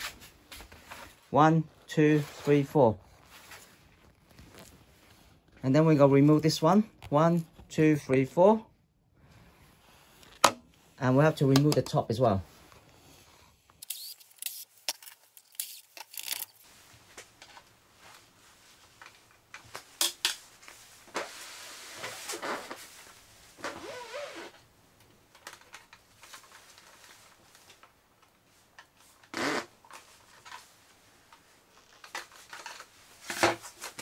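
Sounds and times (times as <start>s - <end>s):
short creak: 29.2s - 29.8s.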